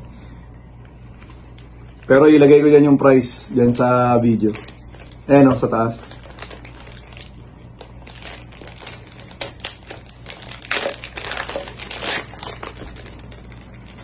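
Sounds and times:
plastic packaging crinkling: 3.6s - 14.0s.

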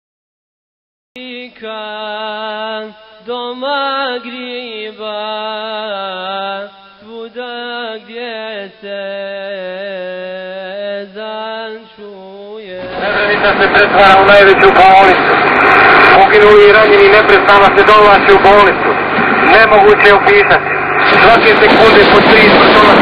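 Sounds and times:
person chanting unaccompanied: 1.2s - 15.3s.

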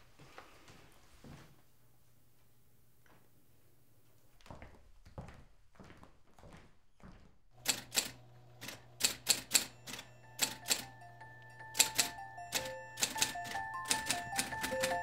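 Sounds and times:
typewriter keys clicking: 7.6s - 15.0s
typewriter motor humming: 7.6s - 15.0s
light chiming music: 9.5s - 15.0s.

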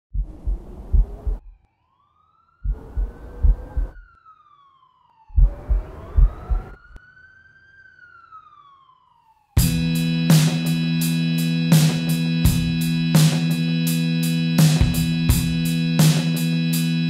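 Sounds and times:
heavy low thumps: 0.2s - 1.6s, 2.7s - 4.0s, 5.4s - 6.8s
police siren wailing: 1.4s - 17.0s.

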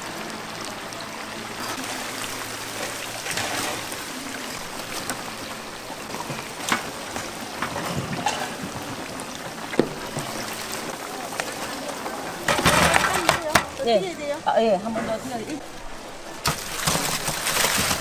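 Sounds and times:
chicken sizzling in hot oil: 1.5s - 11.4s.

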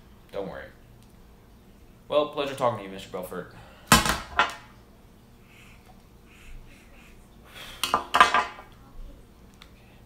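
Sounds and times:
objects clattering on glass table: 7.8s - 8.7s.

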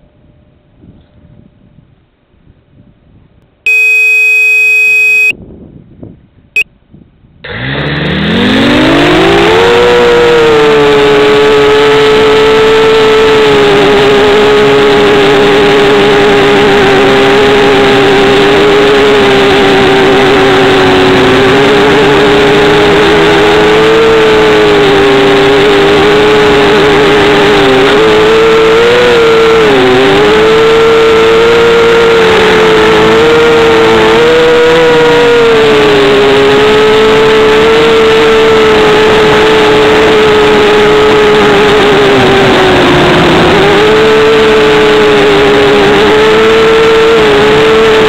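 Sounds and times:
drone motors whining: 3.7s - 5.3s.

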